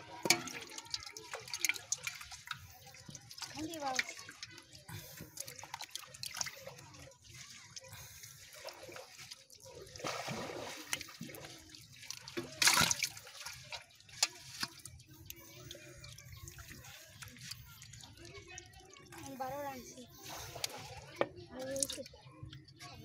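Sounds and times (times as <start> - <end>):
water dripping: 0.0 - 22.9
hands splashing in muddy water: 3.4 - 15.3.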